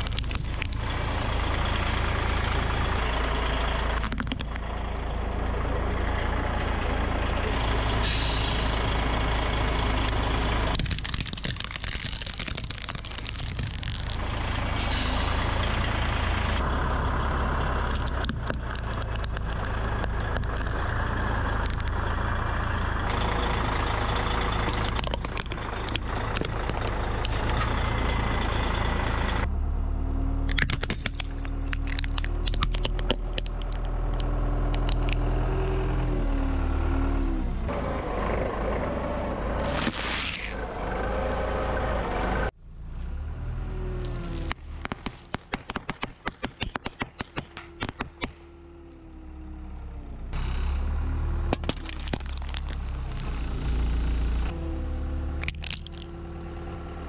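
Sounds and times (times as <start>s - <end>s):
plastic toys cracking and crunching: 0.0s - 1.2s, 4.0s - 4.6s, 10.7s - 14.3s, 17.8s - 21.9s, 24.7s - 27.6s, 30.5s - 35.2s, 39.6s - 40.6s, 44.0s - 48.4s, 51.5s - 53.4s, 55.4s - 56.2s
vehicle engines running: 0.0s - 57.0s.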